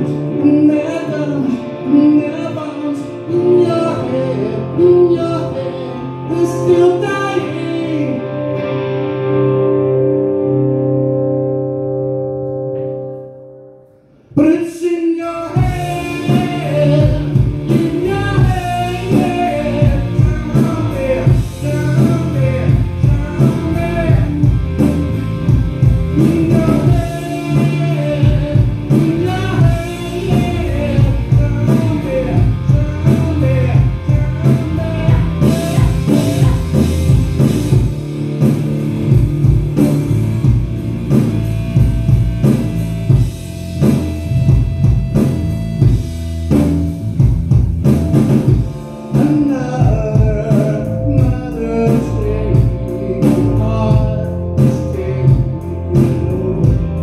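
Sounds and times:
man singing into microphone: 0.0s - 8.6s, 14.4s - 25.1s, 26.1s - 37.3s, 49.0s - 57.0s
bass guitar: 0.0s - 57.0s
electric guitar: 0.0s - 57.0s
drum kit: 15.4s - 57.0s.

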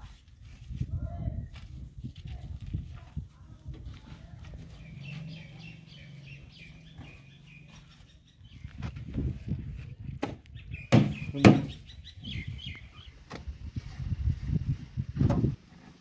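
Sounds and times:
small birds chirping: 4.1s - 13.4s
sharp knocks: 10.2s - 11.8s.

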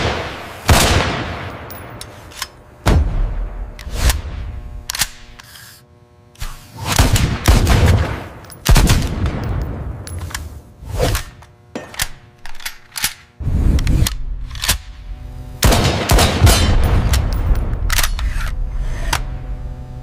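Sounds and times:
rifle shots: 0.0s - 1.6s, 6.9s - 9.6s, 15.6s - 17.4s.

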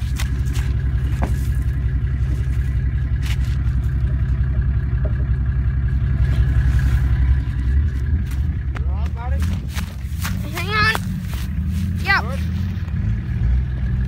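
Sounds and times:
engine low rumble: 0.0s - 14.0s.

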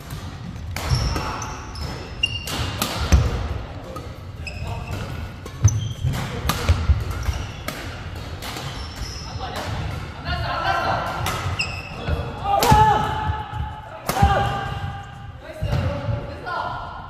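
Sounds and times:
racket hitting shuttlecock: 0.0s - 10.1s, 11.0s - 14.8s
shoes squeaking on floor: 0.9s - 2.8s, 4.4s - 6.4s, 7.2s - 7.7s, 8.6s - 9.6s, 11.4s - 12.4s.

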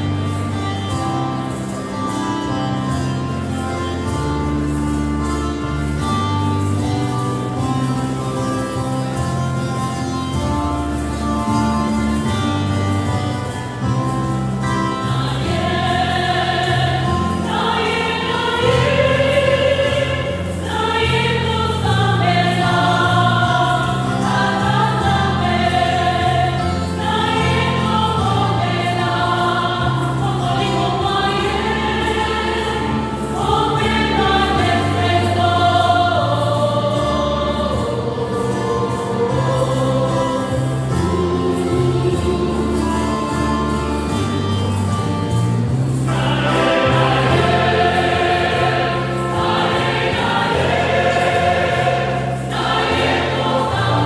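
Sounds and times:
choir singing a hymn: 13.8s - 44.8s, 45.8s - 54.0s.

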